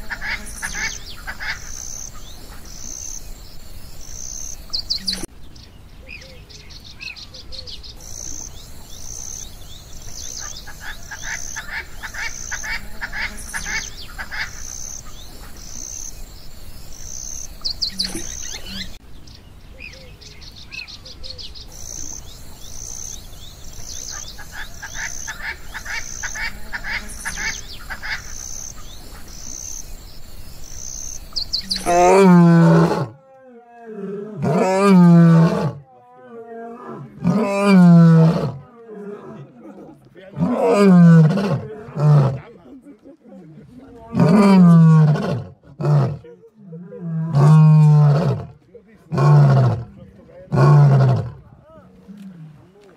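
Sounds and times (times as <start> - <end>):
lion roaring: 31.8 - 42.6, 44.0 - 52.7.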